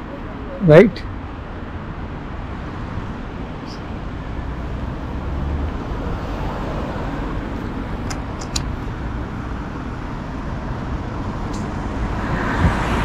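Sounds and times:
cars passing on street: 0.0 - 13.0
brief clicks: 8.0 - 8.7.

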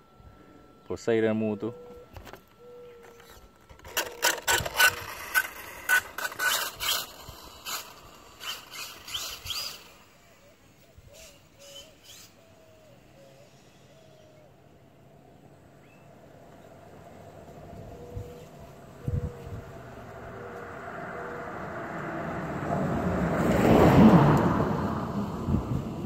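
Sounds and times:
electric motor throttle bursts: 3.8 - 10.3
rising motor whine: 16.0 - 26.0.

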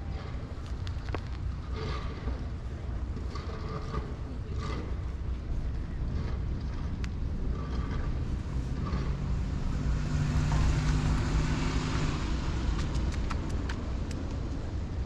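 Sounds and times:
vehicle engine passing by: 7.4 - 15.0.

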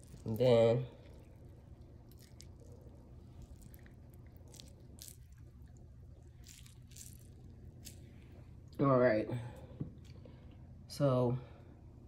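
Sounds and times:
food crinkling being handled: 0.0 - 8.5
low steady hum: 0.0 - 12.0.

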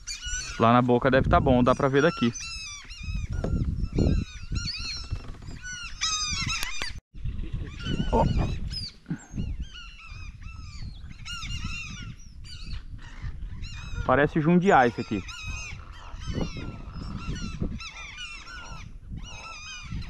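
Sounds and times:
waterbirds honking: 13.0 - 20.0.

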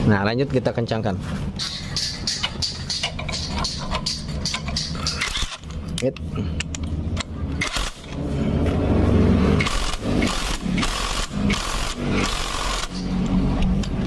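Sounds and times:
electric power wrench running: 7.6 - 8.2, 9.6 - 13.3.

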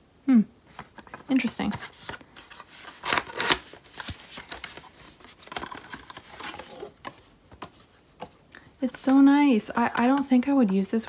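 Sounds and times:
card scraping against plastic bottle: 1.6 - 7.0.

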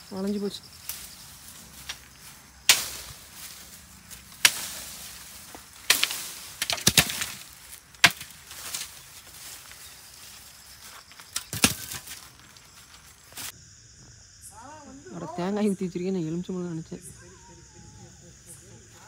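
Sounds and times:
knife chopping bamboo: 2.7 - 3.1, 4.4 - 4.9, 5.8 - 8.9.

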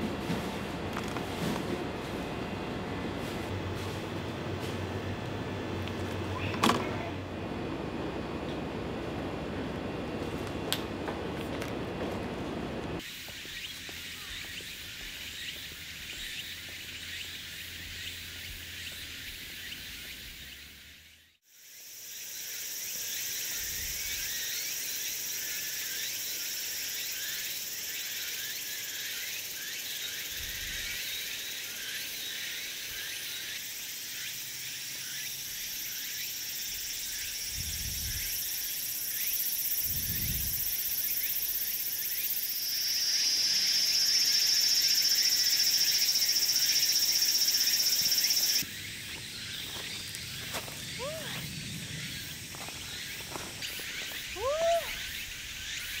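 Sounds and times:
shrill insect buzz: 13.0 - 56.0
insects shrilling: 21.6 - 56.0.

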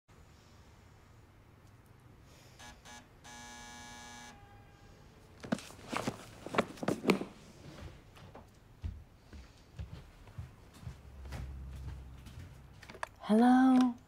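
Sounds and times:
door buzzer: 2.6 - 4.5.

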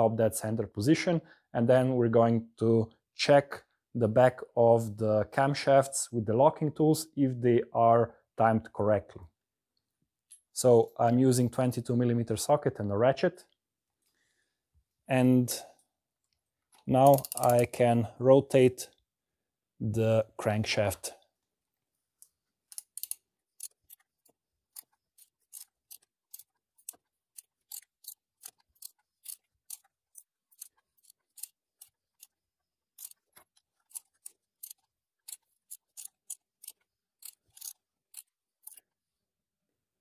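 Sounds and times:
ratchet clicking: 17.0 - 17.6, 22.7 - 24.0.

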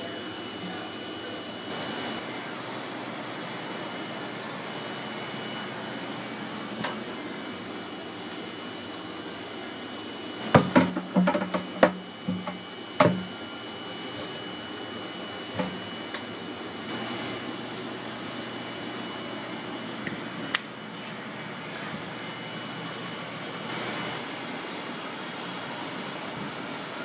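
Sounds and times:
steady background hum: 0.0 - 27.0
plastic pipe knocking against tank: 10.5 - 13.3.

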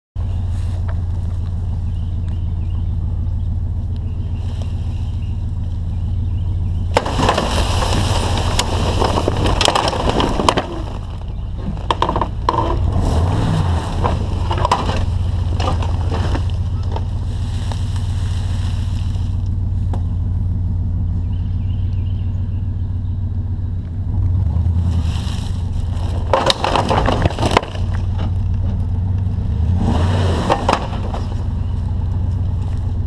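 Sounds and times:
truck engine humming: 0.2 - 33.0
metal frame scraping and crunching: 6.9 - 19.4, 24.7 - 33.0.

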